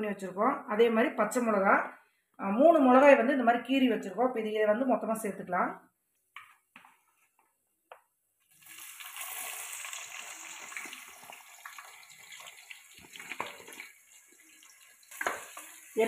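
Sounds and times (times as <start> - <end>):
onions sizzling in hot oil: 8.5 - 16.0.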